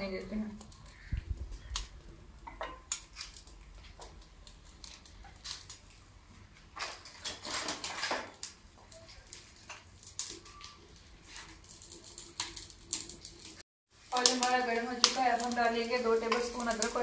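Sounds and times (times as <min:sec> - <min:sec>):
wood fire crackling and popping: 0:00.0 - 0:17.0
rustling scrape: 0:06.8 - 0:08.4.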